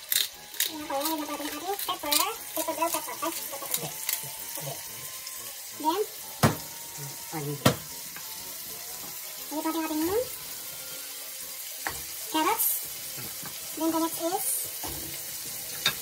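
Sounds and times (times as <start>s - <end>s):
meat sizzling in a pot: 0.0s - 16.0s
vegetables knocking into pot: 6.4s - 6.7s.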